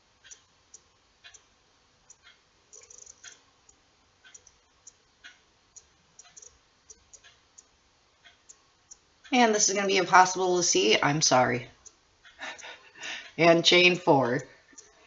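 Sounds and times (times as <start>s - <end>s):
crochet hook clicking: 2.1s - 7.4s.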